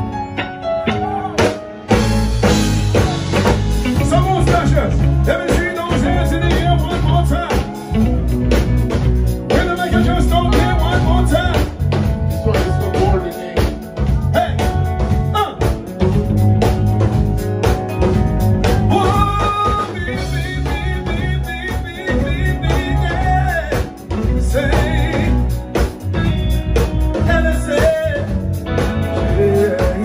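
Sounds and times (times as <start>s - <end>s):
live reggae band playing: 0.0s - 30.0s
man singing through pa: 2.9s - 8.0s, 9.5s - 15.8s, 18.8s - 25.8s, 27.2s - 30.0s.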